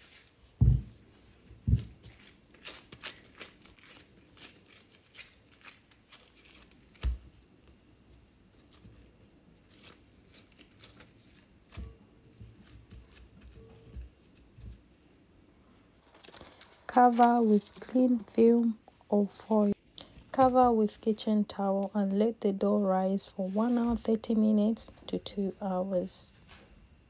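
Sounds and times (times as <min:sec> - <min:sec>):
disposable gloves rustling: 0:16.0 - 0:22.4, 0:23.2 - 0:25.0.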